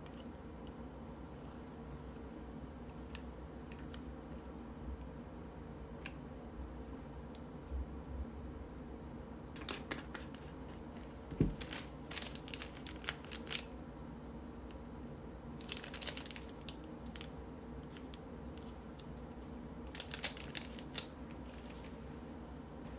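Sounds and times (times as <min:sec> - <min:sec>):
plastic bag crinkling: 0:09.6 - 0:13.7, 0:15.6 - 0:18.8, 0:19.8 - 0:22.0.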